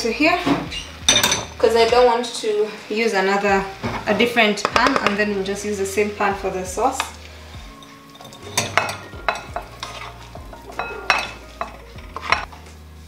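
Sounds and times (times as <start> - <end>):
utensil clinking glass bowl: 1.1 - 1.9, 7.7 - 12.5
utensil scraping pan: 7.8 - 12.5.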